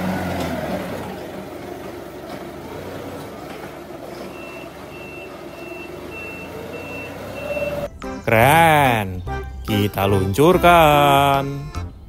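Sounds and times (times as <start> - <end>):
forklift running: 0.0 - 11.8
reversing alarm beeping: 4.1 - 7.9.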